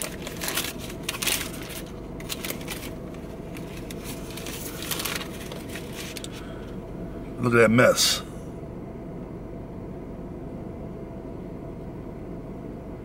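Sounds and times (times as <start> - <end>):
paper wrapper crinkling: 0.0 - 6.7.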